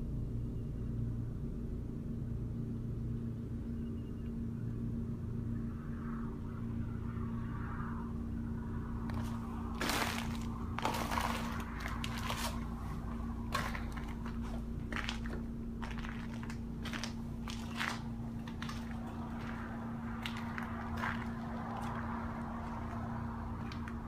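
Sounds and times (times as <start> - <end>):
constant hum: 0.0 - 24.0
low steady rumble: 0.0 - 24.0
footsteps on debris: 9.1 - 23.0.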